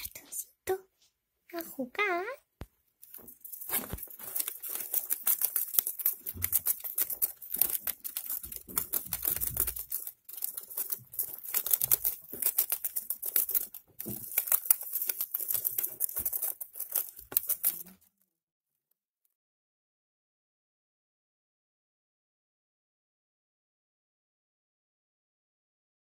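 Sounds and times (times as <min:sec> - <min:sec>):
gerbil gnawing cardboard: 0:03.0 - 0:18.1.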